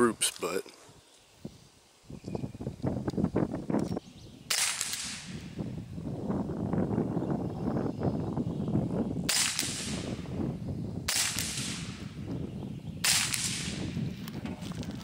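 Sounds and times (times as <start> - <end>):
suppressed pistol shots: 4.5 - 5.4, 9.3 - 10.1, 11.1 - 12.0, 13.0 - 13.8.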